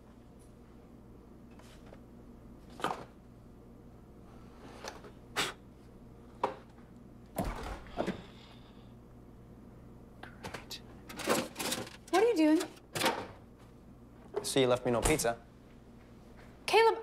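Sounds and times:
refrigerator door thud: 7.4s - 8.2s.

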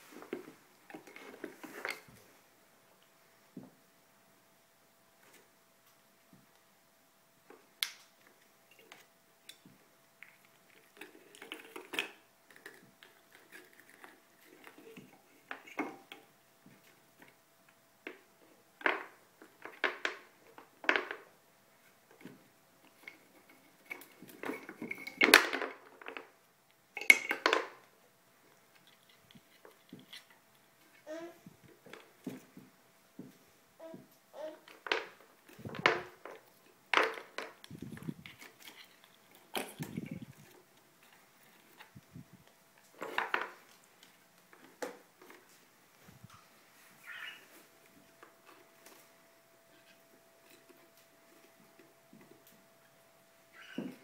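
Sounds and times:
parrot knocking toy pieces: 27.0s - 27.8s.

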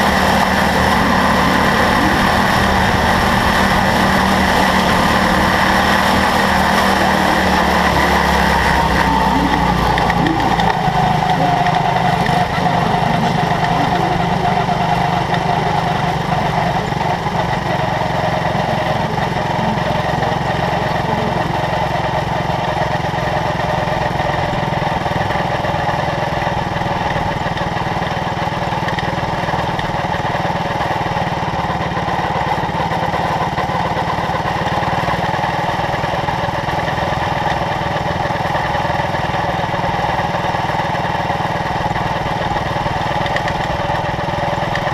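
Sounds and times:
race car engine: 0.0s - 44.9s.

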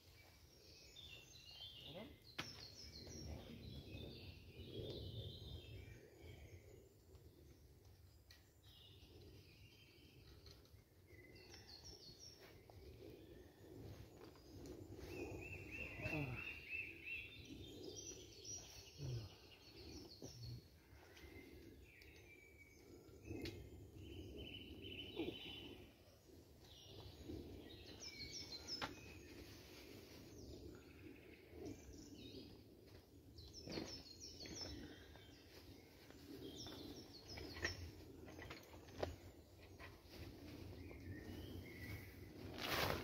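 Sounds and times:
birds chirping: 11.1s - 29.5s
soft rustles: 35.3s - 43.0s.

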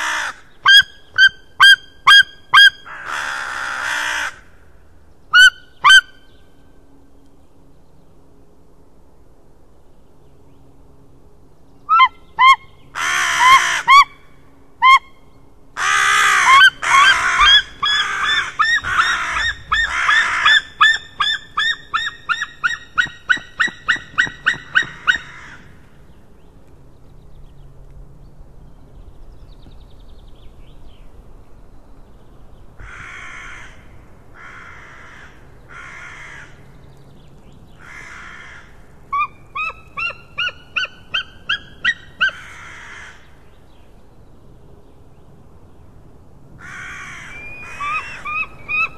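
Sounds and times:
eagle yelping calls: 0.0s - 4.4s, 5.3s - 6.2s, 11.9s - 14.2s, 15.8s - 25.6s, 37.8s - 43.1s, 46.6s - 48.9s.

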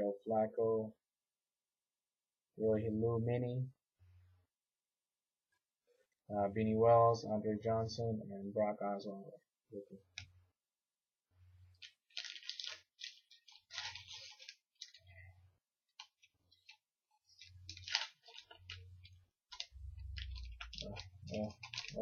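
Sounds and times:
foil wrapper crinkling: 11.7s - 15.2s, 15.9s - 22.0s.

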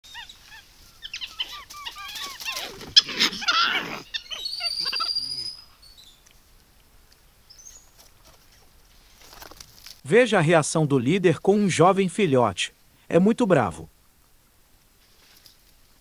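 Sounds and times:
monkeys chirping: 0.0s - 6.2s
monkeys screaming: 0.1s - 5.7s
long high whistling call: 4.2s - 5.7s.

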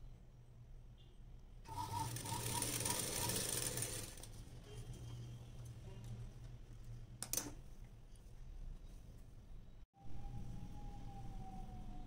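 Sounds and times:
sewing machine stitching: 1.7s - 4.3s.

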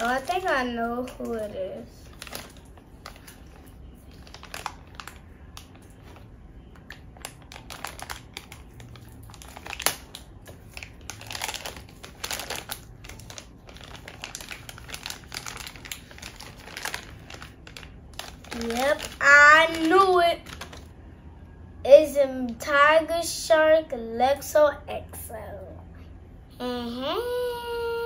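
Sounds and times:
plastic wrapper crinkling: 0.0s - 20.9s
wrapper snapping: 2.0s - 3.5s, 4.1s - 6.2s, 6.8s - 20.9s.

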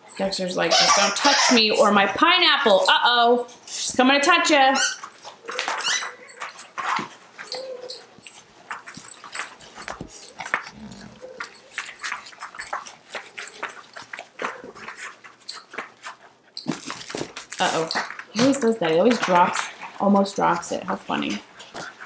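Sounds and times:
dogs scuffling: 0.0s - 22.0s
dog whining: 4.8s - 14.8s.

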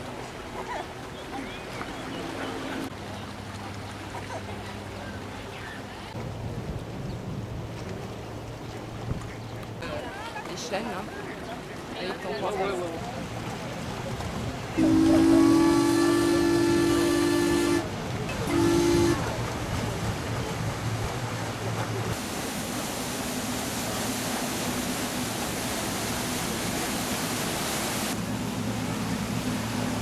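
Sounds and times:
low engine hum: 13.0s - 30.0s
two-note boat horn blasts: 14.8s - 19.6s.

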